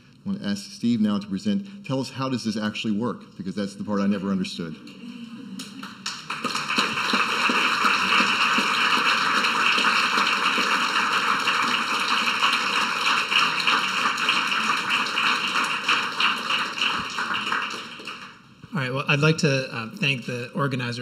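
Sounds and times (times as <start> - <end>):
audience applauding: 4.8 - 18.6.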